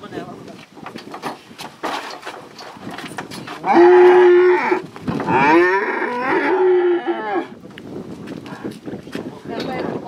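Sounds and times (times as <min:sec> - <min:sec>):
cattle mooing: 0:03.6 - 0:07.5.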